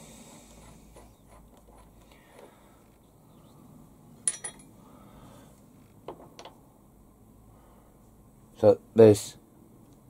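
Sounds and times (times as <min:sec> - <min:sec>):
steel parts clinking: 0:04.2 - 0:04.8.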